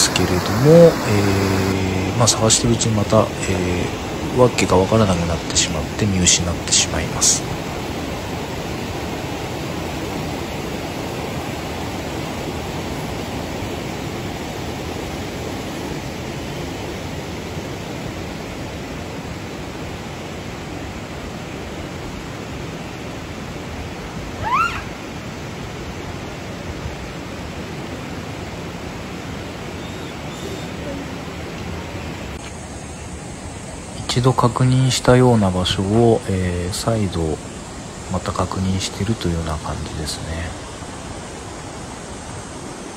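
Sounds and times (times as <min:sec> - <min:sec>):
steady rushing noise: 0:00.0 - 0:42.9
monkey call: 0:24.4 - 0:25.0, 0:29.8 - 0:31.2.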